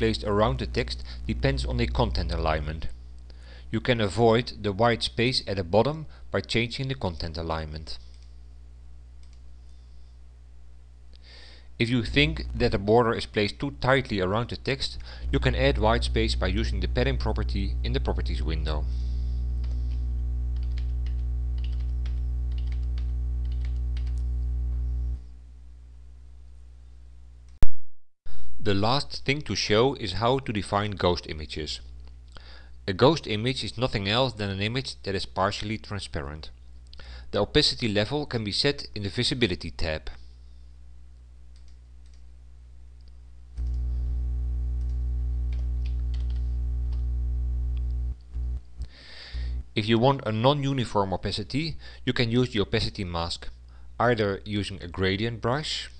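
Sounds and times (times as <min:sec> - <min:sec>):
loud electrical mains hum: 0:00.0 - 0:27.6, 0:28.3 - 0:55.9
computer keyboard typing: 0:19.6 - 0:24.3, 0:44.8 - 0:47.0
keyboard and mouse clicks: 0:44.8 - 0:47.0.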